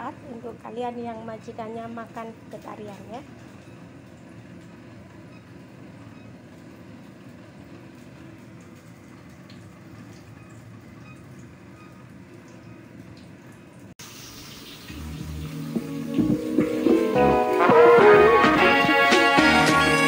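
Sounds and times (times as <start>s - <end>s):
music: 14.9s - 20.0s.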